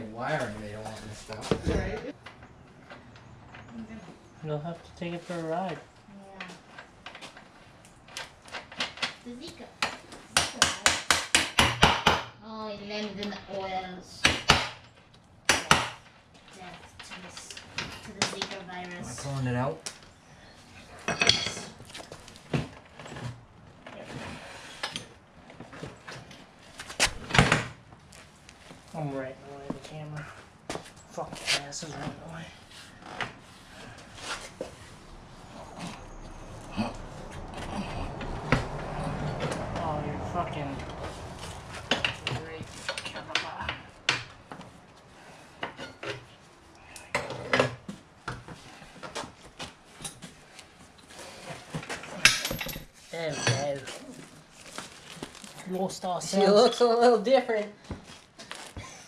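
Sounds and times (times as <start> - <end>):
metal clinks and scrapes: 20.7 - 23.3, 51.0 - 56.0.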